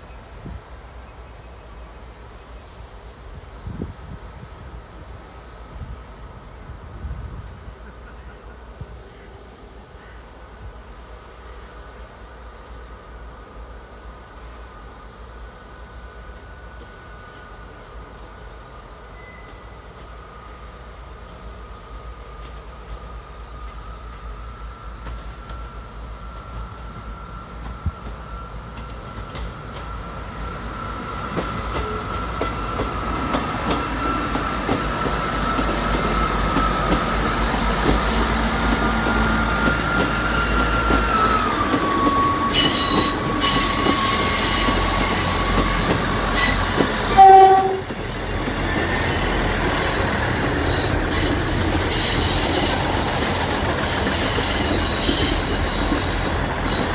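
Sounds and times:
diesel train approaching: 0.0 - 56.9
brief loud tone: 19.2 - 19.9, 41.9 - 47.9
metallic squealing: 39.4 - 47.9.

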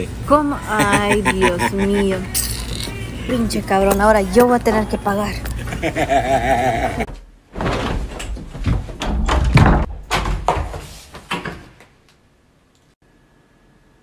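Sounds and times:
man laughing: 0.7 - 2.3, 5.5 - 7.1
wardrobe doors banging: 7.1 - 12.0.

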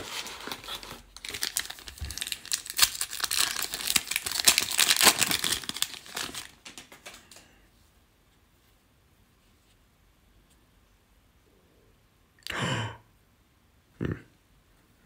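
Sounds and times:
foil pack tearing: 0.0 - 7.1
foil wrapper crinkling: 0.0 - 7.5.

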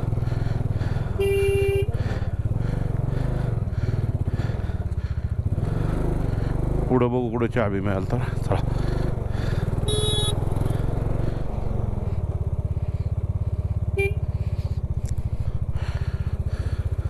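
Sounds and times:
motorcycle engine running: 0.0 - 17.0
vehicle horn honk: 1.2 - 2.0, 9.8 - 10.4, 13.9 - 14.4.

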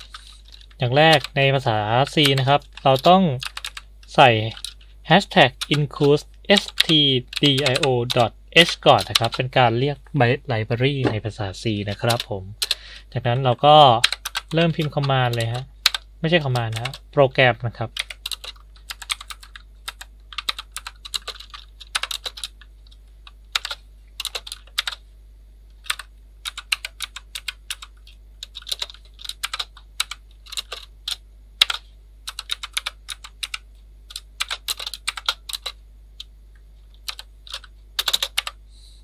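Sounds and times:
keyboard typing clicks: 11.9 - 12.8, 18.0 - 25.0, 25.8 - 36.3, 36.9 - 38.6.

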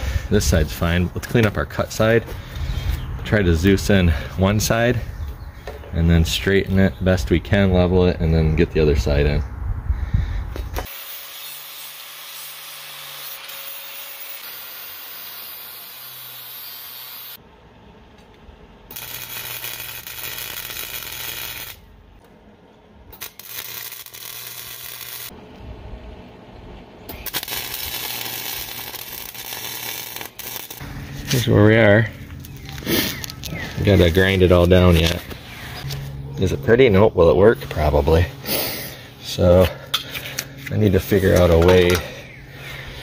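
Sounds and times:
welder arc crackling and hissing: 18.9 - 21.9, 23.1 - 25.4, 27.1 - 31.5.

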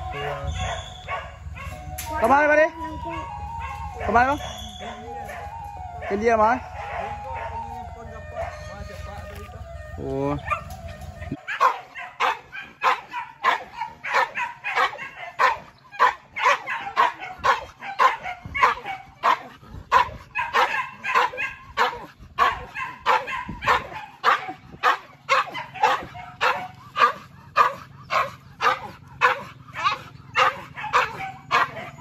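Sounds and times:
dogs barking rapidly: 0.0 - 1.9, 10.4 - 32.0.

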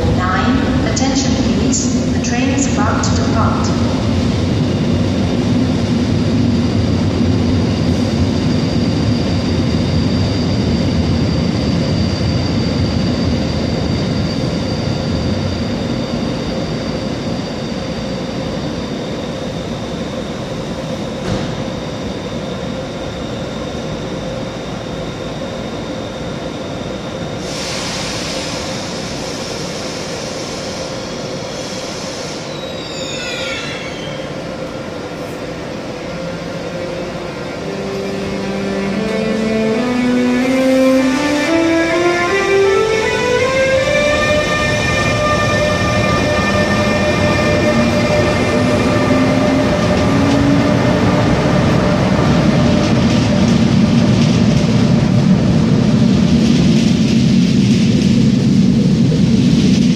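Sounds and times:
electric locomotive hum and whine: 0.0 - 59.9
burst of hiss: 27.4 - 28.8
short gliding squeals: 32.5 - 34.3.

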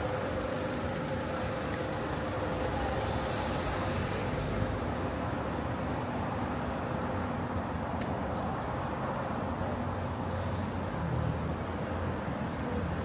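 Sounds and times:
traffic rumble on city road: 0.0 - 13.0.

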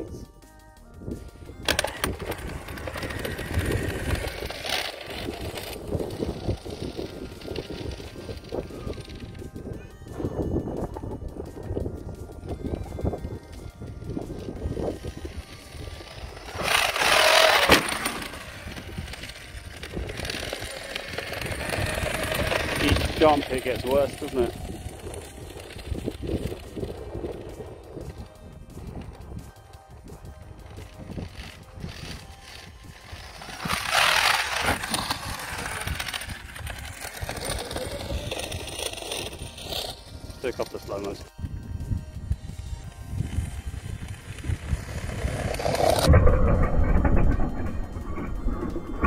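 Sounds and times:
toy truck gears clattering: 1.6 - 10.4, 12.6 - 29.5, 30.6 - 41.3.

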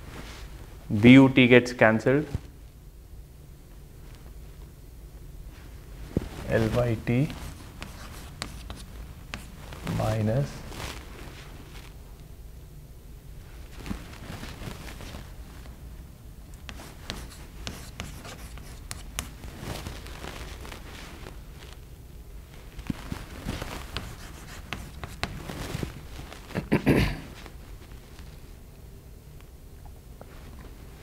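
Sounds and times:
chalk writing on a blackboard: 7.3 - 9.6, 16.6 - 19.4, 23.9 - 25.4.

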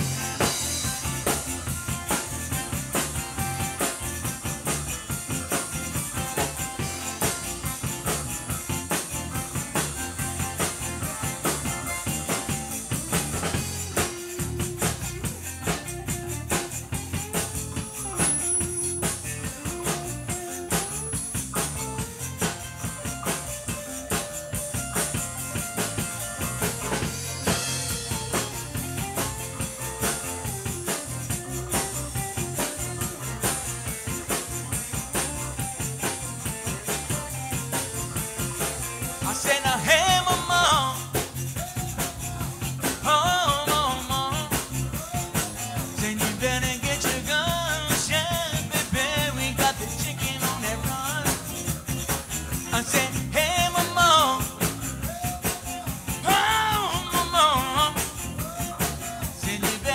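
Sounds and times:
accordion: 0.0 - 59.9
drum kit: 0.0 - 59.9
electric guitar: 0.0 - 59.9.

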